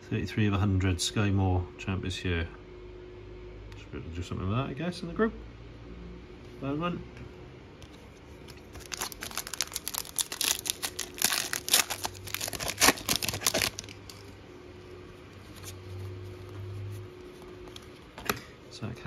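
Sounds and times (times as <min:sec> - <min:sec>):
foil wrapper tearing and crinkling: 0:08.6 - 0:14.3.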